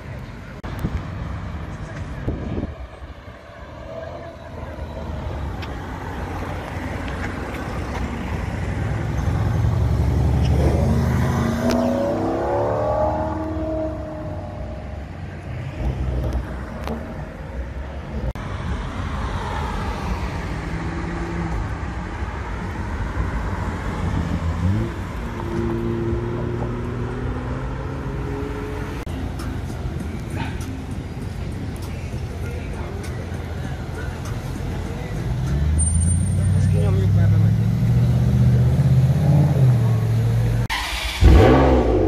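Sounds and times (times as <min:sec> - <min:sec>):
city traffic: 0:00.0 - 0:42.0
car engine accelerating hard: 0:08.7 - 0:14.8, 0:36.4 - 0:42.0
second engine revving: 0:37.0 - 0:42.0.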